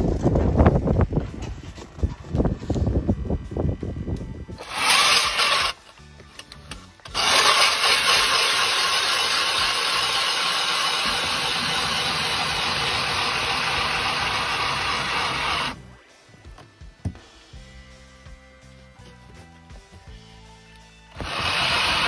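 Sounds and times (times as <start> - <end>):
electric ice auger grinding: 4.6 - 5.9, 7.0 - 15.8, 21.1 - 22.0.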